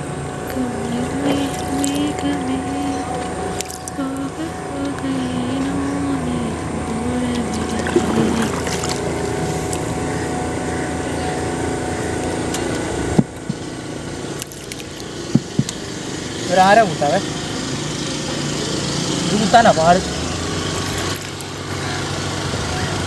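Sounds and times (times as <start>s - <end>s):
motorboat engine running: 0.0s - 23.0s.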